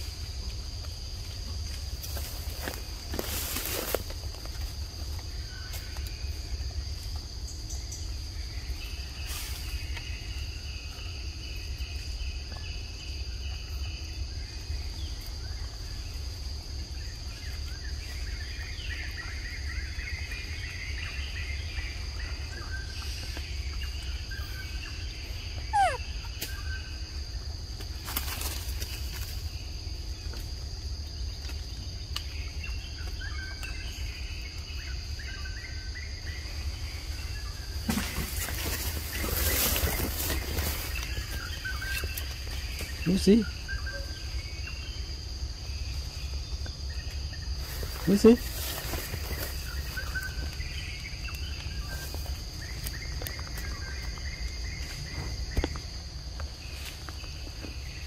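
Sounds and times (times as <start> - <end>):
insect drone: 0.0 - 58.0
bird chirps: 17.0 - 27.2, 31.7 - 55.8
rustling: 37.8 - 43.0.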